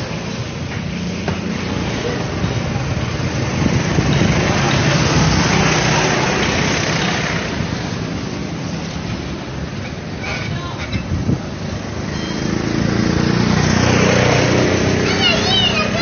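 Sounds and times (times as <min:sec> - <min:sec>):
go-kart engine passing: 0:00.0 - 0:08.6, 0:11.8 - 0:16.0.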